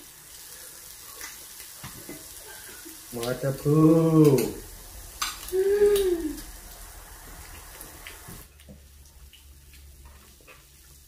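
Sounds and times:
meat sizzling on grill plate: 0.0 - 8.5
person humming: 5.5 - 6.6.

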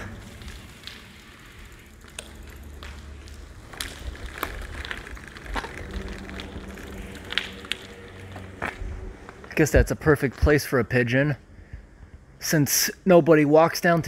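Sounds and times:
footsteps on concrete with debris: 0.0 - 10.5
low rumble: 0.0 - 12.4.

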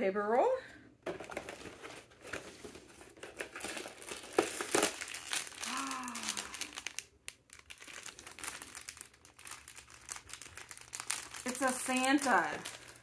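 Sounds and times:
plastic bag crinkling: 1.1 - 13.0.

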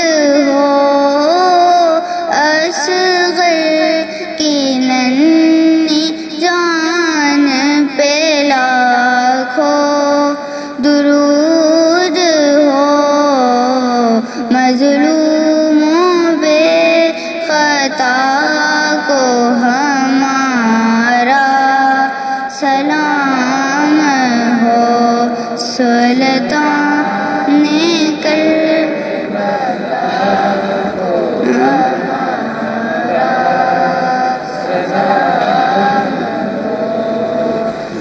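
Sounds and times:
high voice singing devotional chant: 0.0 - 38.0.

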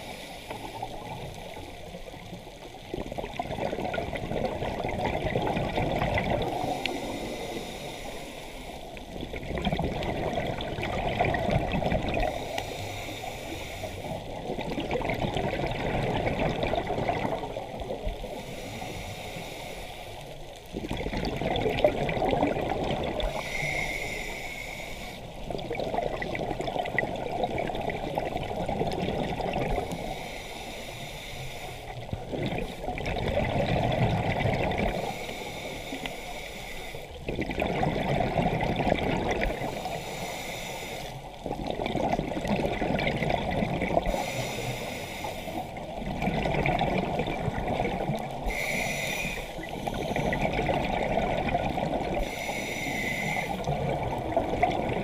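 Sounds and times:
regulator hiss on inhale: 0.0 - 2.0, 6.4 - 9.1, 12.0 - 14.4, 18.2 - 20.7, 23.2 - 25.5, 29.7 - 32.9, 34.8 - 37.2, 39.5 - 41.5, 44.0 - 45.9, 47.8 - 50.6, 51.9 - 53.7
exhaled bubbles rushing: 0.7 - 6.8, 9.1 - 12.5, 14.1 - 18.2, 20.7 - 23.4, 25.4 - 30.0, 32.1 - 35.1, 37.2 - 39.7, 41.4 - 44.2, 45.7 - 48.5, 49.5 - 52.3, 53.5 - 55.0.

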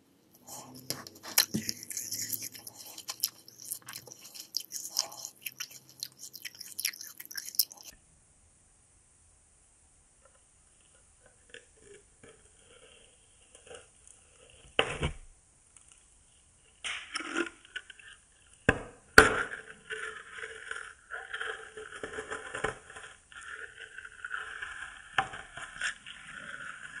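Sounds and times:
chewing candy with crunches: 0.4 - 8.0
wet crackling mouth sounds: 0.4 - 8.0.

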